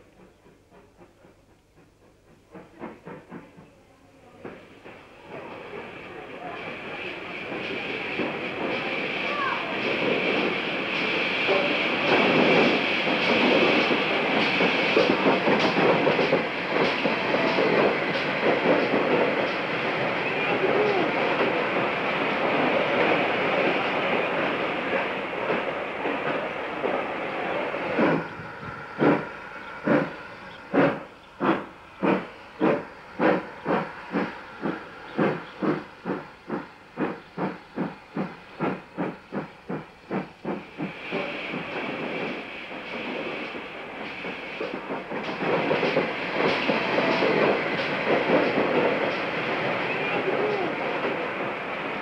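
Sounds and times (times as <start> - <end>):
steam locomotive hissing: 0.0 - 52.0
train running noise: 0.0 - 52.0
locomotive exhaust chuffs: 27.9 - 42.1.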